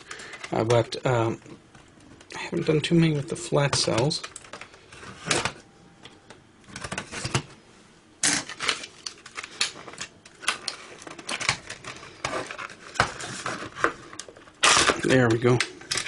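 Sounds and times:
plastic casing cracking: 8.2 - 16.0.

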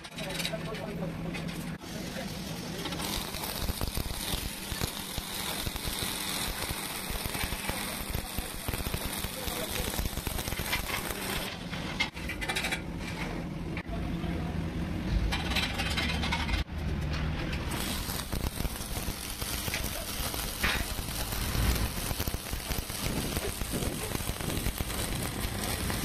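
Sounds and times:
electric arc welding: 1.9 - 11.5, 17.7 - 26.0.

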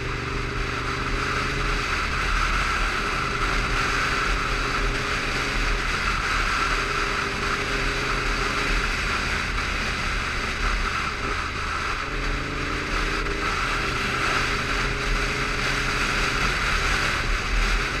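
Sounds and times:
motorcycle engine running: 0.0 - 18.0
road noise: 0.0 - 18.0.

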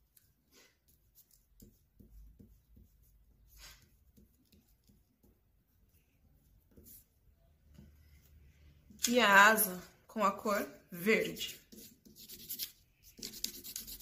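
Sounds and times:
crayon scratching on paper: 0.2 - 5.4, 6.6 - 7.1, 11.1 - 14.0.

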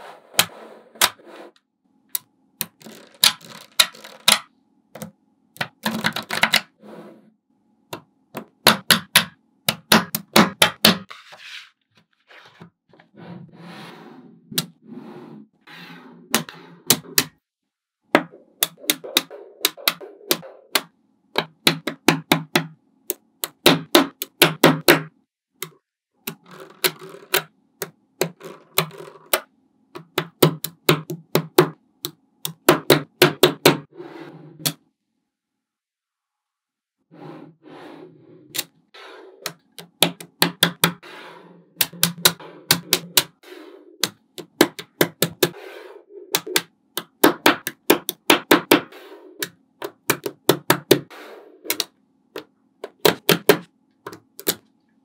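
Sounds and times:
magnetic balls clicking together: 25.6 - 29.4, 41.8 - 43.4.

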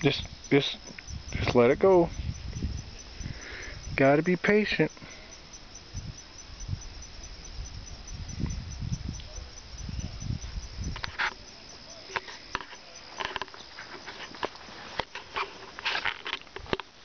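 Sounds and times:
wind rumble on microphone: 0.0 - 4.2, 5.4 - 11.9
faint insect trill: 0.0 - 17.0
sharp clicks and rustles: 10.4 - 17.0.

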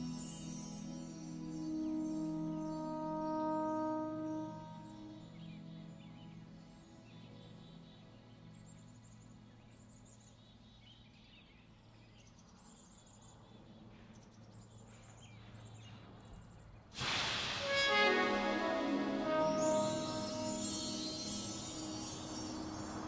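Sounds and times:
layered sustained tones: 0.0 - 10.0, 17.0 - 23.0.

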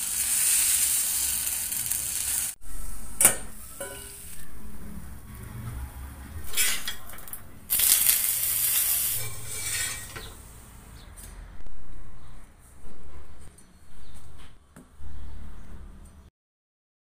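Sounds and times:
batter sizzling on a hot griddle: 0.0 - 2.6, 7.7 - 10.2
low rumble: 11.4 - 14.4.

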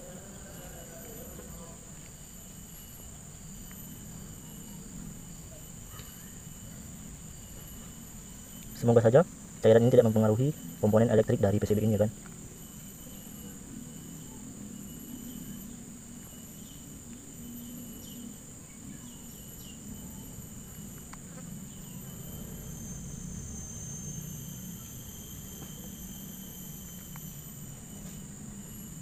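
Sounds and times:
insects chirring: 0.0 - 29.0
faint ticks: 8.5 - 8.8.

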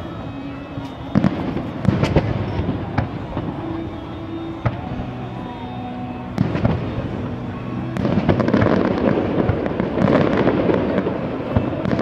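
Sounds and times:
crackling firework pops and booms: 0.8 - 3.6, 8.0 - 12.0
firework bang: 1.1 - 3.6.

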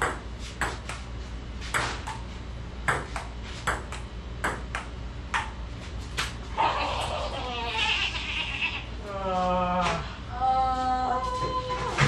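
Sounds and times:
ping pong ball hits: 0.0 - 1.0, 1.8 - 2.2, 2.9 - 5.6.

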